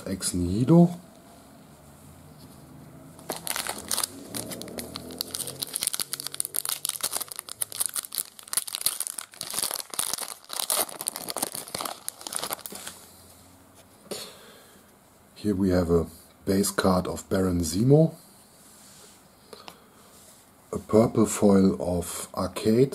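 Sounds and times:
foil wrapper tearing and crinkling: 0:03.2 - 0:12.9.

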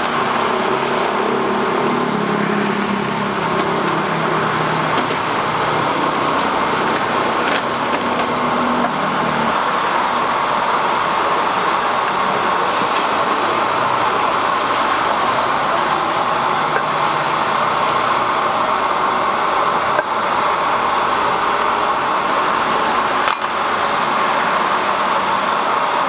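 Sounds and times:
roadside traffic noise: 0:00.0 - 0:26.0.

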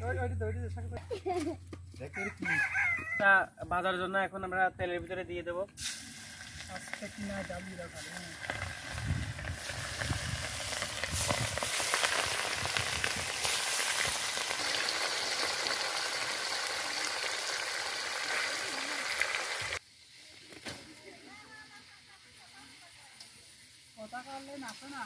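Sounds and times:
fish sizzling in hot oil: 0:05.8 - 0:20.2, 0:21.8 - 0:25.0.

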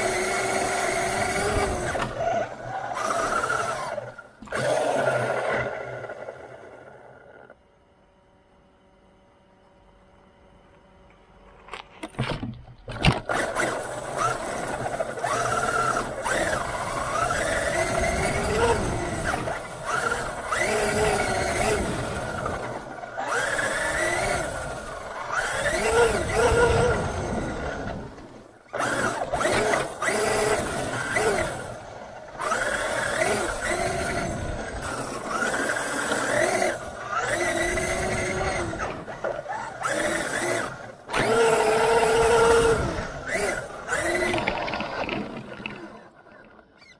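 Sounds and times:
electric motor whining: 0:00.0 - 0:07.5, 0:13.0 - 0:46.1.

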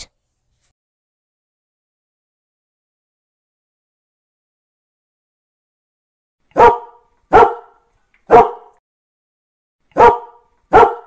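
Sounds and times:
dog barking: 0:06.5 - 0:08.8, 0:09.9 - 0:11.0.

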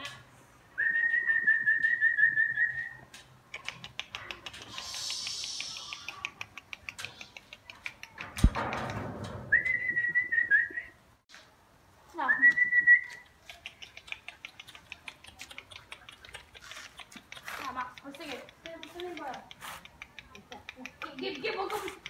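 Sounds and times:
sharp thump: 0:08.2 - 0:09.6
high whistling: 0:09.5 - 0:11.0.

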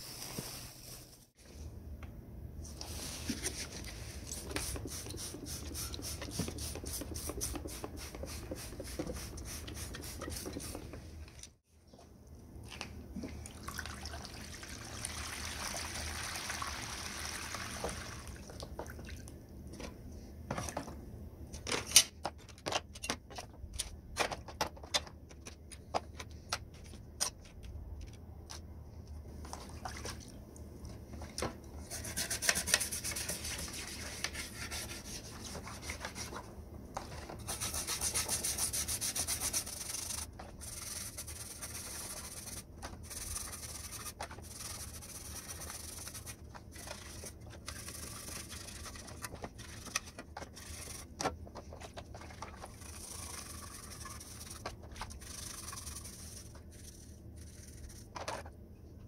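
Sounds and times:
metal rubbing in water: 0:52.4 - 0:58.1.

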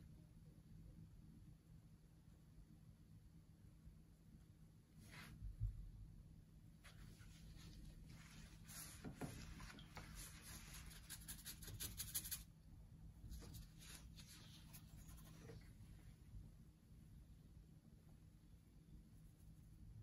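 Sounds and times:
paintbrush strokes: 0:06.8 - 0:12.5, 0:13.2 - 0:16.1.

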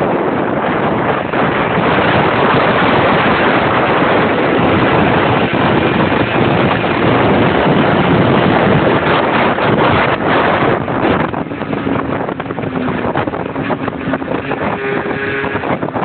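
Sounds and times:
motorcycle engine: 0:00.0 - 0:16.0
wind rushing on microphone: 0:00.0 - 0:16.0.

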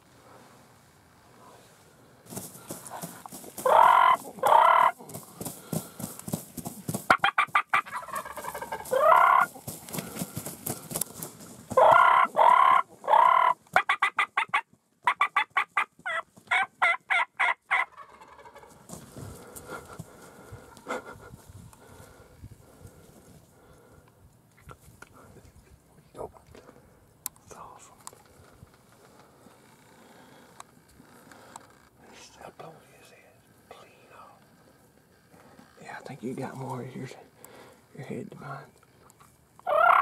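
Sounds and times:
rapid wing-flapping: 0:02.3 - 0:12.0
turkey yelping: 0:03.6 - 0:05.0, 0:07.1 - 0:09.6, 0:11.7 - 0:18.8, 0:39.6 - 0:40.0
turkey gobbling: 0:03.6 - 0:05.1, 0:07.1 - 0:09.7, 0:11.7 - 0:18.8, 0:39.6 - 0:40.0.

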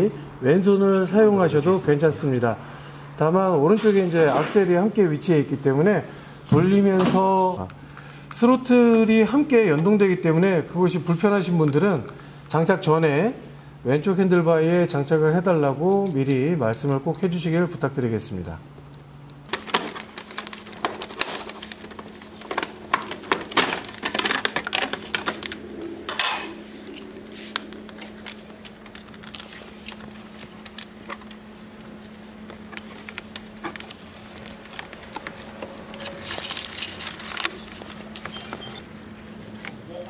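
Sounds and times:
clicks and rustling of wiring: 0:18.8 - 0:39.8
low hum: 0:21.8 - 0:40.0.

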